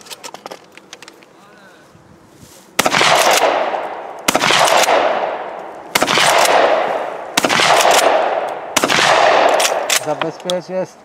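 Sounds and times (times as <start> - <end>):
shotgun shots echoing: 2.8 - 10.4.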